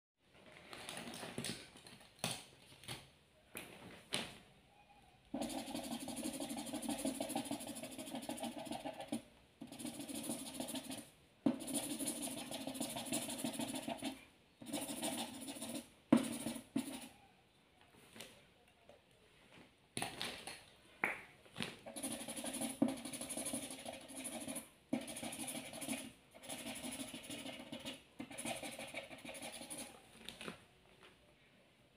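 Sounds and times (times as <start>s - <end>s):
marker rubbing on paper: 5.4s - 17.1s, 21.8s - 30.0s
marker taps and clicks: 14.7s - 17.0s.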